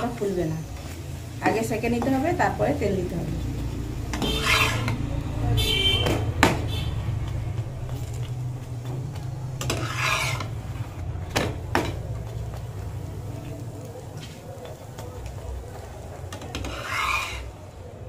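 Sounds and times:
metal spatula scraping frying pan: 0:04.0 - 0:05.2, 0:09.6 - 0:11.4, 0:16.3 - 0:17.8.

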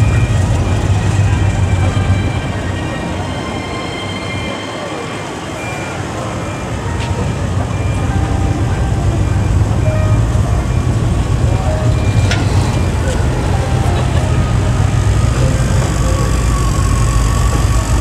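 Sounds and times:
crowd background noise: 0:00.0 - 0:18.0
engine idling: 0:07.8 - 0:18.0.

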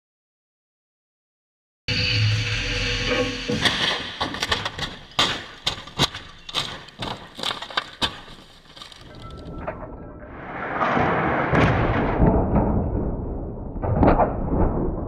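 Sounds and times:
car body crashing on tarmac: 0:10.6 - 0:15.0.

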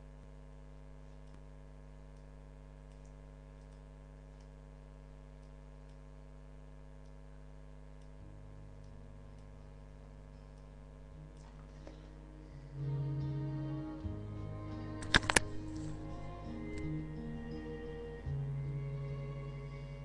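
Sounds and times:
electrical hum: 0:00.0 - 0:20.0
faint ticks: 0:02.1 - 0:04.6, 0:05.3 - 0:06.2, 0:06.9 - 0:07.3.

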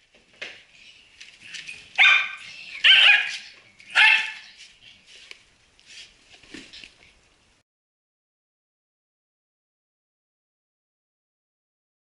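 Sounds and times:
dog barking: 0:02.0 - 0:04.5.

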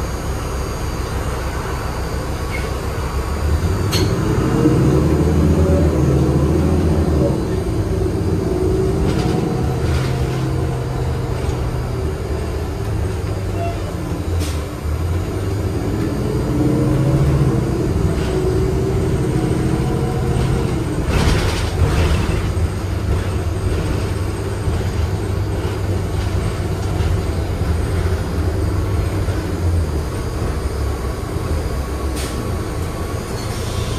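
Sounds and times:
rising whine: 0:00.0 - 0:21.7
bus drivetrain rumble: 0:00.0 - 0:33.9.

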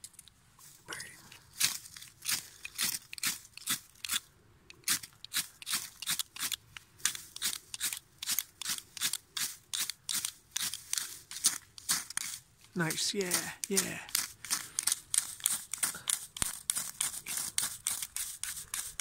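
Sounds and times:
striker scraping ferrocerium rod: 0:13.2 - 0:19.0.

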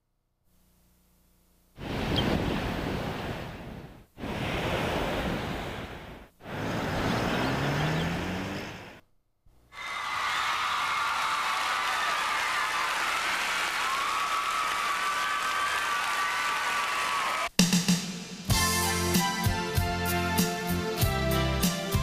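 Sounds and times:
faint low hum: 0:00.0 - 0:04.2
ocean waves breaking: 0:01.8 - 0:09.0.

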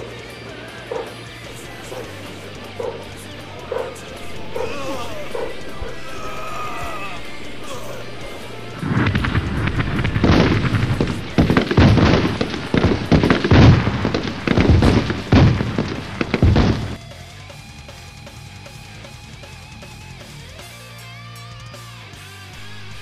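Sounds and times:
gunfire and explosions: 0:00.0 - 0:17.1
music track: 0:00.0 - 0:23.0.

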